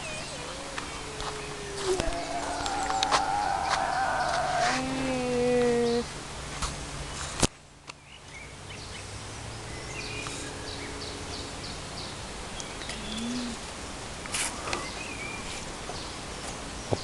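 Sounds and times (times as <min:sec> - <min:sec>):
songbird chirping: 0:00.0 - 0:06.1, 0:07.9 - 0:13.7
outdoor background noise: 0:00.0 - 0:17.0.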